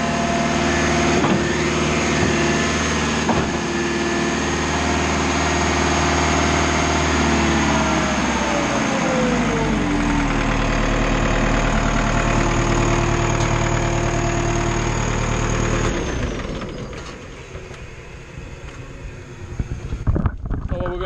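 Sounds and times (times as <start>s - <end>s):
concrete pump running: 0.0s - 21.0s.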